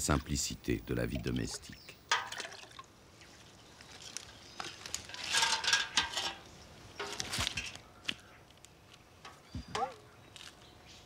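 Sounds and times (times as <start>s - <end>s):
water splashing in pail: 1.0s - 6.1s
metal pail clattering: 2.1s - 2.8s, 4.6s - 7.7s.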